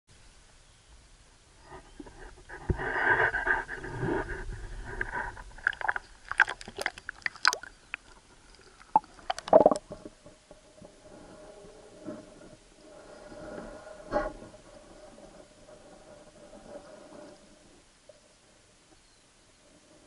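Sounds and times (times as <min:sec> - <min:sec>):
water splashing and sloshing: 0:05.0 - 0:10.1.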